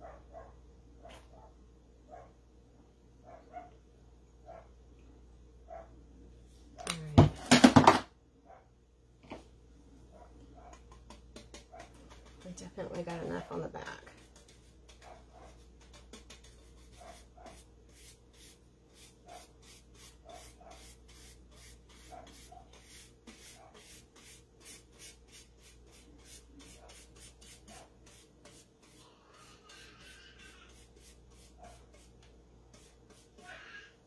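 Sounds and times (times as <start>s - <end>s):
paintbrush scratching on wood: 11.0s - 33.4s.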